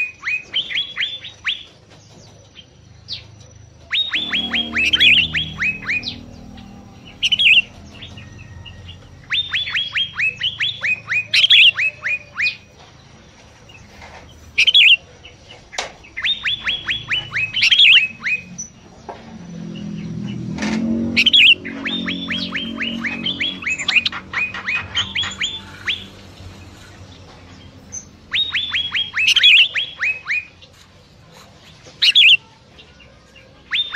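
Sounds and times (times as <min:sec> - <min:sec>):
harsh bird chirps: 0:00.0 - 0:30.8, 0:31.6 - 0:33.9
songbird whistling: 0:03.0 - 0:12.7, 0:14.5 - 0:15.1, 0:16.0 - 0:18.8, 0:20.9 - 0:26.2, 0:27.5 - 0:30.6, 0:32.0 - 0:32.5, 0:33.6 - 0:33.9.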